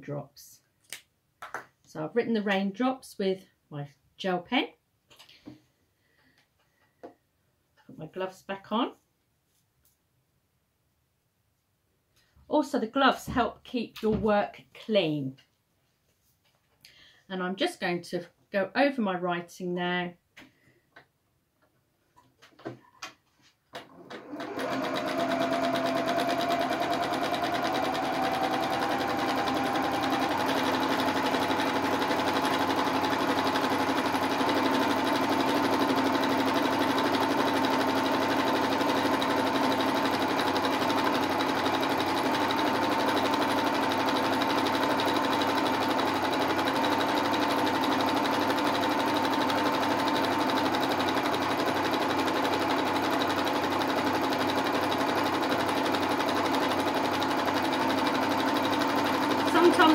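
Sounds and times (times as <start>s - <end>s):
sewing machine stitching: 23.7s - 59.9s.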